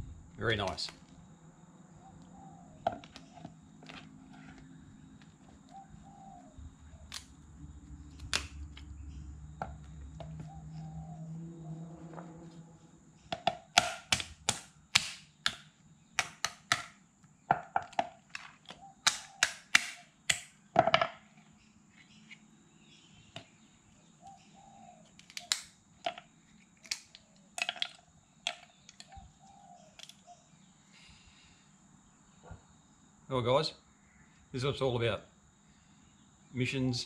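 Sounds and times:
hammer cracking crab shell: 0:13.3 - 0:18.1, 0:19.0 - 0:21.0.

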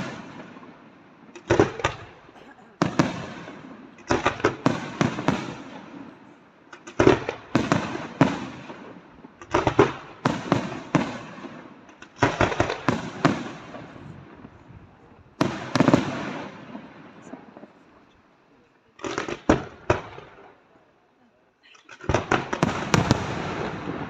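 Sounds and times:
firework shells bursting: 0:06.7 - 0:14.4, 0:19.0 - 0:20.6, 0:21.8 - 0:24.0
rumbling firework tail: 0:12.2 - 0:18.1, 0:22.0 - 0:24.0.

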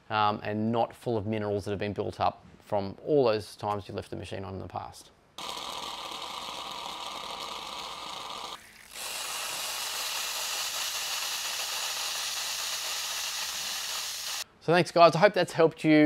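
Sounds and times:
espresso machine steam hiss: 0:05.4 - 0:14.5.

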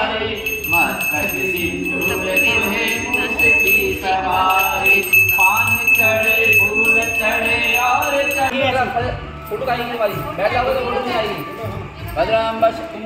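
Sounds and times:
small hand bell ringing: 0:00.0 - 0:08.7
voices: 0:00.0 - 0:09.0.

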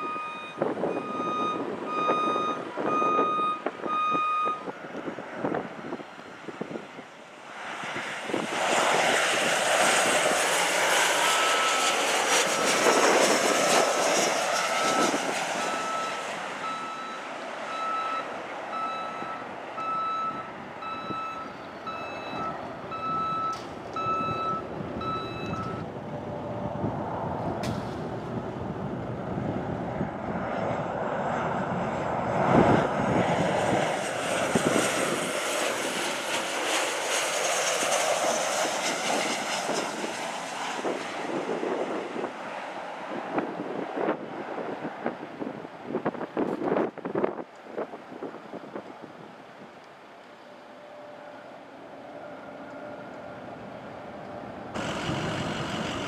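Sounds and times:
vehicle reversing beeper: 0:00.0 - 0:04.7, 0:11.2 - 0:12.9, 0:14.7 - 0:25.9
jet airliner engines rushing: 0:00.0 - 0:56.0.

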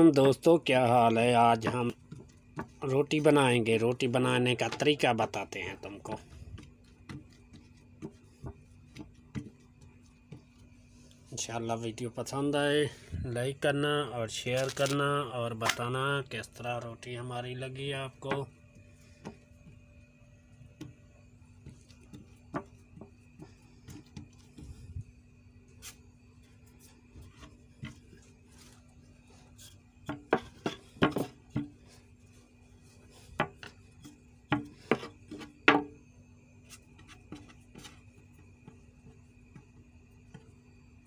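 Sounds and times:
faint steady hum: 0:00.0 - 0:41.0
rolling pin rubbing on board: 0:26.8 - 0:35.9.

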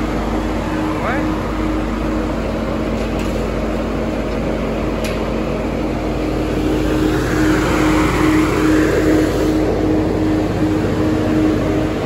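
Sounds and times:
diesel generator engine running: 0:00.0 - 0:12.0.

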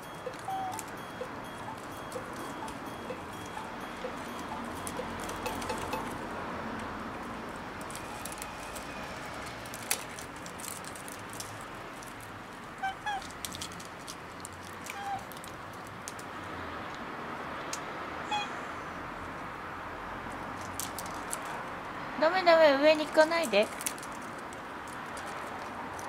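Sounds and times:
short pitched calls: 0:00.0 - 0:06.2
light clicks and scratches: 0:13.2 - 0:16.3.

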